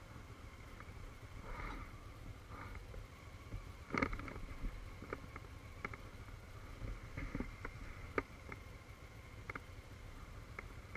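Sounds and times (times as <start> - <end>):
motorcycle engine rumbling: 0.0 - 10.9.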